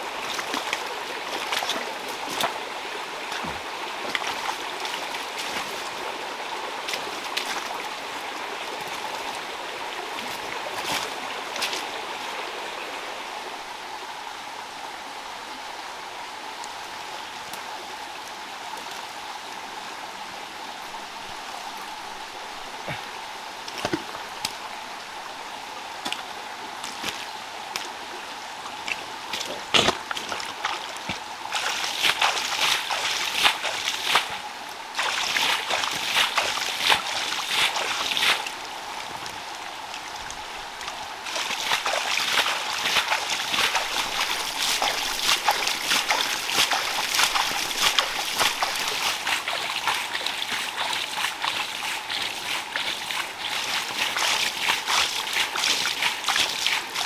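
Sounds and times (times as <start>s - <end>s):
muddy water trickling and splashing: 0.0s - 14.8s, 15.6s - 57.0s
small crackling splashes: 0.2s - 2.6s, 28.7s - 57.0s.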